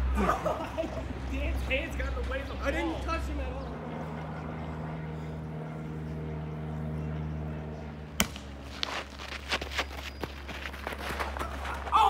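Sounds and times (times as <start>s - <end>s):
steady low hum: 0.0s - 12.0s
footsteps on gravel: 8.3s - 12.0s.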